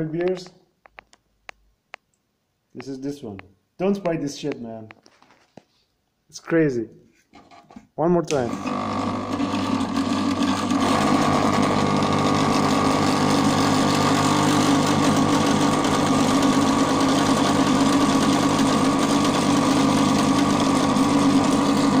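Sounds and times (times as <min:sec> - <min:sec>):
hot air station buzzing rattle: 0:08.4 - 0:22.0.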